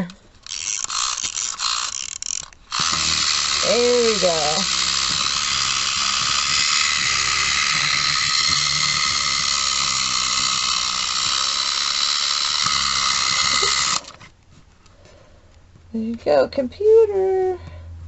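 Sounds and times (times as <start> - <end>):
clockwork spring motor whirring: 0.0 - 14.3.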